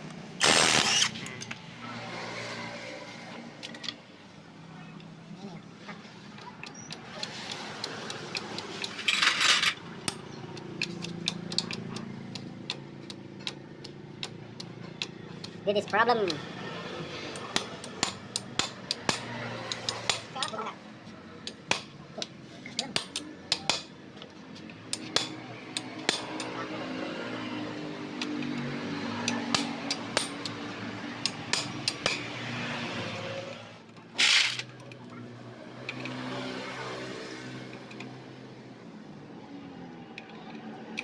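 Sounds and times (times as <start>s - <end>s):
wrench clinking on metal: 17.3s - 20.6s, 21.4s - 23.9s, 24.9s - 26.6s, 29.2s - 30.6s.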